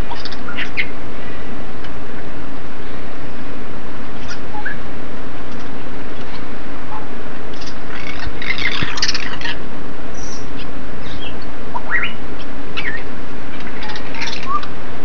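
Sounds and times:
parrots squawking and chirping: 0.0s - 1.0s, 7.5s - 9.6s, 10.2s - 14.7s.

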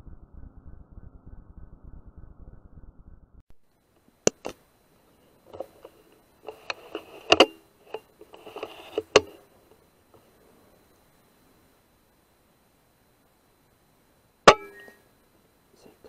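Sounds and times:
sharp clicks and knocks: 4.3s - 4.6s, 5.5s - 9.4s.

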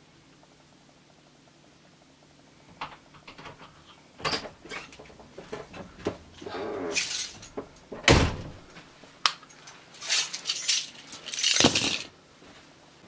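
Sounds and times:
keys jangling: 6.9s - 7.9s, 9.5s - 12.1s
door thuds: 7.5s - 8.6s.

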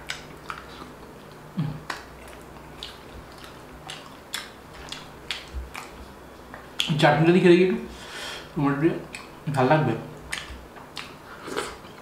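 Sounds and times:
mouth clicks and smacks: 0.0s - 7.0s, 9.1s - 9.4s, 10.2s - 11.9s
person chewing food: 0.0s - 7.0s, 9.0s - 9.5s, 10.2s - 12.0s
person humming low mm: 1.5s - 1.9s.

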